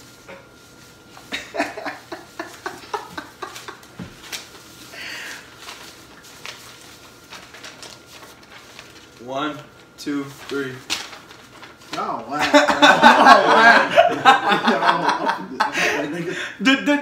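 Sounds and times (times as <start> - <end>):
paper rustling: 0.0 - 12.6.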